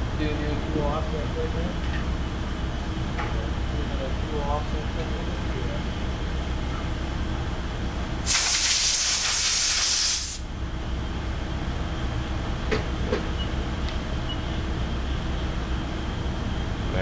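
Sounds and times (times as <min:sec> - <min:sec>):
low machine hum: 0:00.0 - 0:17.0
compressed air hissing: 0:08.2 - 0:10.4.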